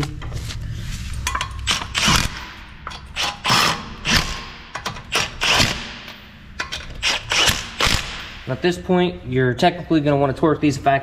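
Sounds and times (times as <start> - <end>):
impact wrench hammering: 1.3 - 8.5.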